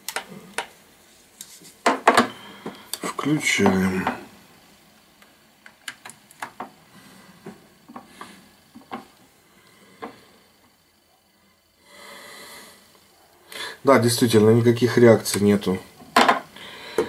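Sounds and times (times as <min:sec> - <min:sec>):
hands working a laptop: 0:00.0 - 0:04.2, 0:05.2 - 0:09.3.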